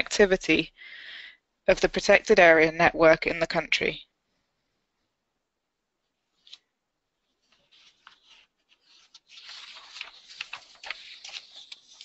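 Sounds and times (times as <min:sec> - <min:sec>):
rustling: 0:06.0 - 0:12.0.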